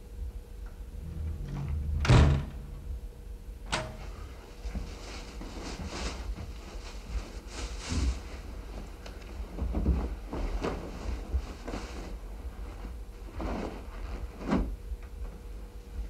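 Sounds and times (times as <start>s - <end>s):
door thud: 1.4s - 2.9s.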